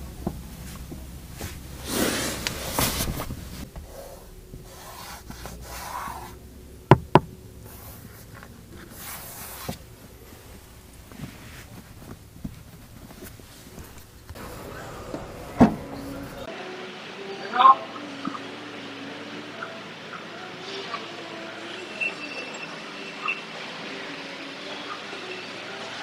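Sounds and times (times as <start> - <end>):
hands rubbing car trim: 0.2 - 14.5.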